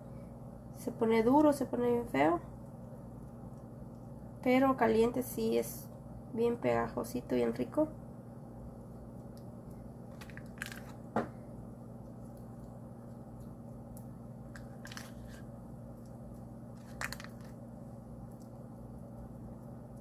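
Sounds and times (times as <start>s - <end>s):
steady low hum: 0.0s - 20.0s
foil wrapper rustling: 10.1s - 11.0s, 14.6s - 15.4s, 16.7s - 17.6s.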